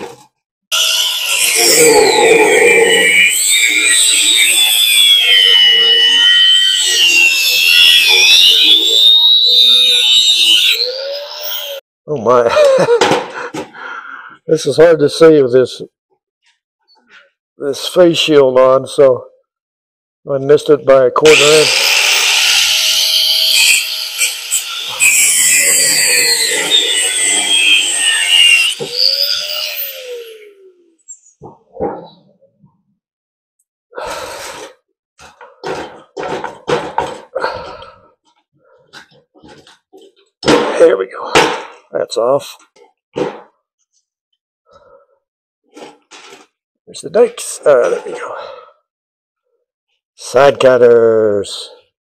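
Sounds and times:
angle grinder cutting metal: 0:00.7 - 0:11.8, 0:21.2 - 0:30.7.

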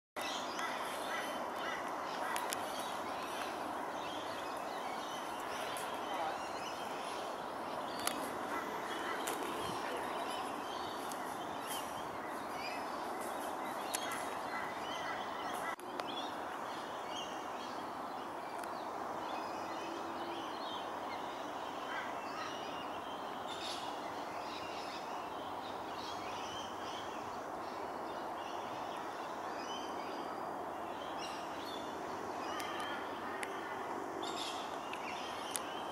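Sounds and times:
birds chirping and calling: 0:00.2 - 0:17.8
steady background hiss: 0:00.2 - 0:35.9.

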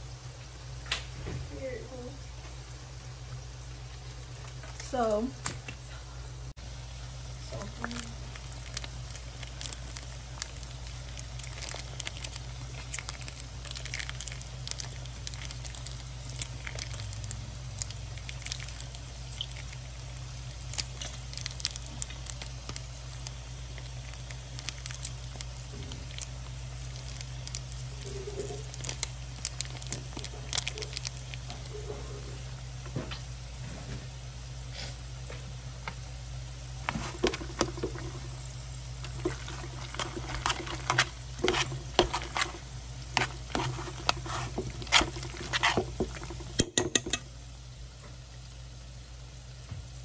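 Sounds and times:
steady low hum: 0:00.0 - 0:50.0
cookware crackling and sizzling: 0:06.8 - 0:33.3, 0:36.8 - 0:47.6
cheese sauce squishing: 0:07.1 - 0:32.7, 0:36.8 - 0:46.8.

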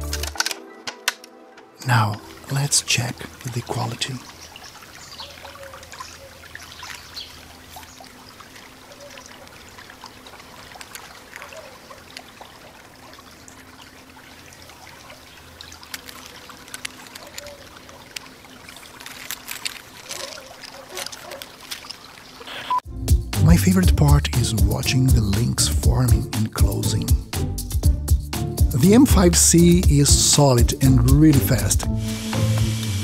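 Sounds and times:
plastic segments clicking and rattling: 0:00.0 - 0:01.3.

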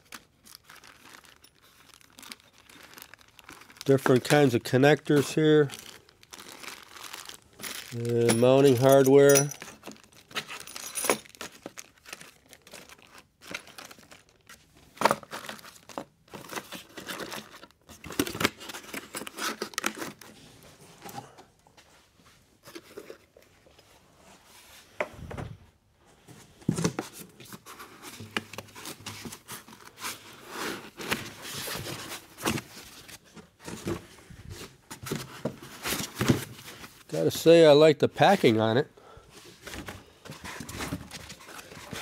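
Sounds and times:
plastic bags crinkling: 0:00.0 - 0:20.2
foam packing rustling: 0:00.0 - 0:20.4, 0:26.7 - 0:37.2, 0:39.3 - 0:42.0
cardboard box set down: 0:30.1 - 0:36.9.

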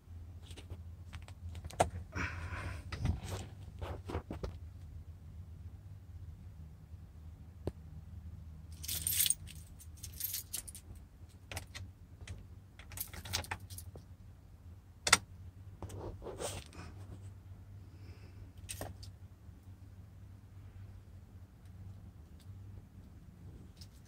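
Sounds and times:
keys jangling: 0:08.8 - 0:10.8, 0:12.8 - 0:13.9.

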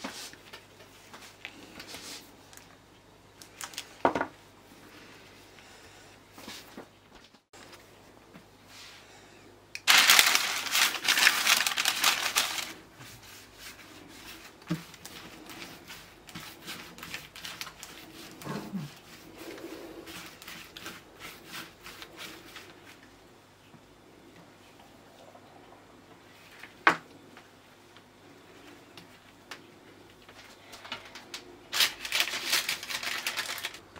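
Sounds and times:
baking paper crinkling: 0:00.0 - 0:04.1, 0:09.8 - 0:23.1, 0:30.3 - 0:33.9
hands rolling dough: 0:10.7 - 0:23.8.

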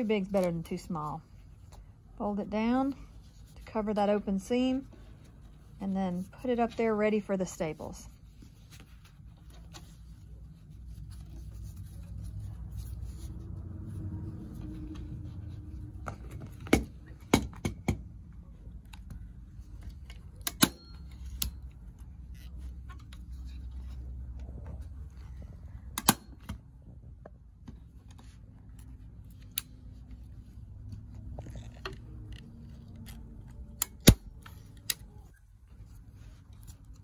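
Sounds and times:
fabric handling noise: 0:00.0 - 0:37.0.

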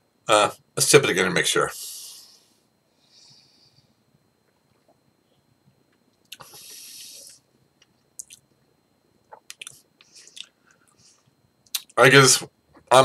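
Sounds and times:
breathy exhale: 0:01.8 - 0:04.0
wet mouth clicks and lip smacks: 0:09.3 - 0:09.8.

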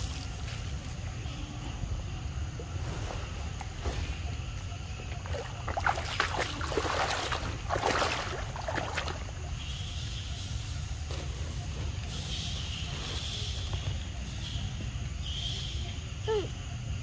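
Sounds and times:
water sloshing and splashing: 0:02.6 - 0:09.6.

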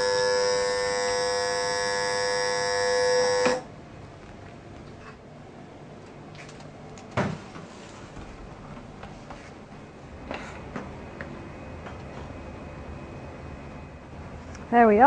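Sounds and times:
faint steady hum: 0:00.0 - 0:07.1.

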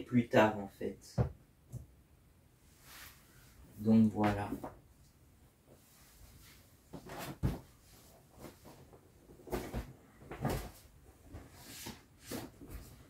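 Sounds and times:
inflatable vinyl toys bumping and rubbing: 0:06.9 - 0:13.0.

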